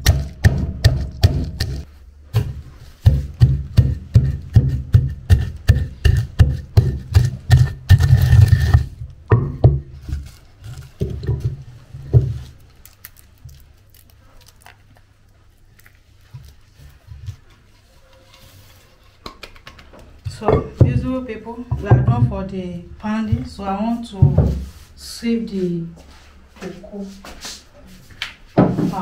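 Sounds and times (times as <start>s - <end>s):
pestle pounding in wooden mortar: 0.0s - 12.5s
beans crackling: 9.9s - 17.7s.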